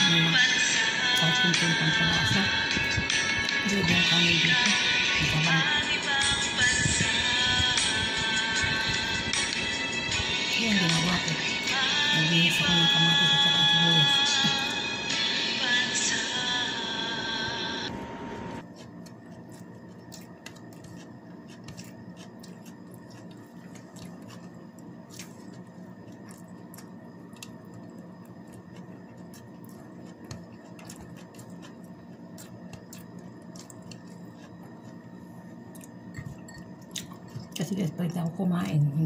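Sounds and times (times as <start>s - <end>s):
background music: 0.0s - 17.9s
steady low hum: 0.0s - 39.0s
person eating and chewing: 18.4s - 37.8s.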